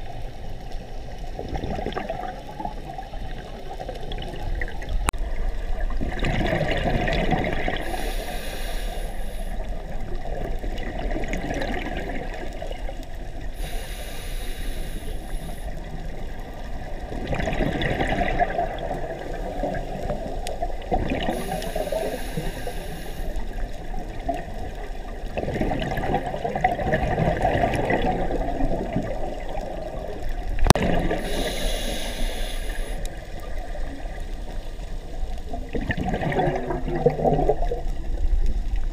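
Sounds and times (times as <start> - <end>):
exhaled bubbles rushing: 1.4 - 8.0, 9.6 - 13.4, 16.1 - 21.9, 23.9 - 31.6, 35.3 - 38.9
hissing inhale through regulator: 7.6 - 9.9, 13.4 - 16.0, 21.2 - 23.8, 31.0 - 33.6.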